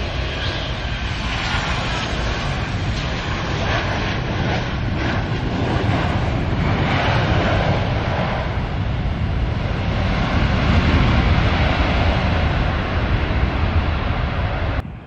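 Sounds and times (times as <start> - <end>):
jet engines rumbling on landing: 0.0 - 15.0
wind buffeting microphone: 0.0 - 15.0.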